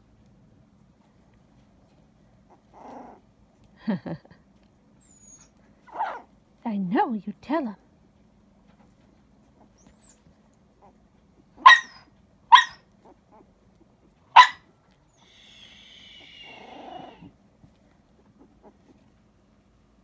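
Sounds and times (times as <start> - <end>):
puppy whining: 2.4 - 3.4, 4.9 - 6.3, 9.4 - 19.3
puppies yelping: 5.0 - 6.3, 9.6 - 13.6, 15.2 - 17.3.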